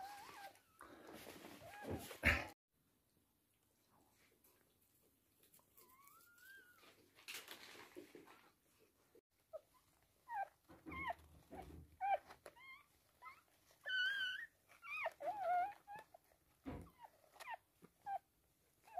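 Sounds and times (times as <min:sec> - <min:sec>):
puppies crying in high squeaks: 0:09.5 - 0:18.2.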